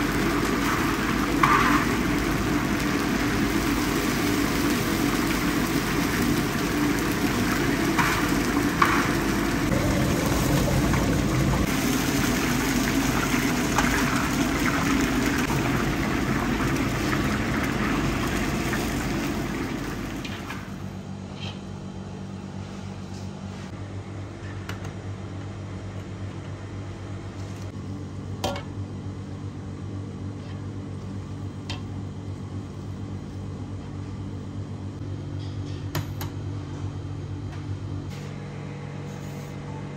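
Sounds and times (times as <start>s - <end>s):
hot oil sizzling and bubbling: 0.0s - 21.0s
low kitchen hum: 0.0s - 39.9s.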